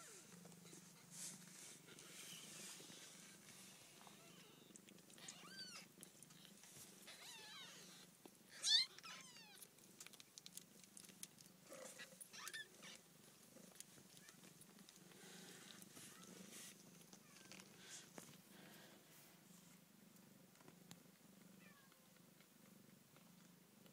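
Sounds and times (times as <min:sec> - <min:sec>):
kittens mewing: 0:04.0 - 0:09.7.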